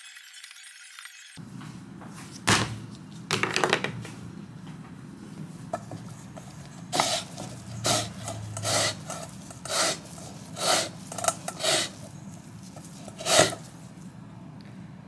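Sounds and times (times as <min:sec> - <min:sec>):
grater rasping lemon peel: 0:05.8 - 0:14.0.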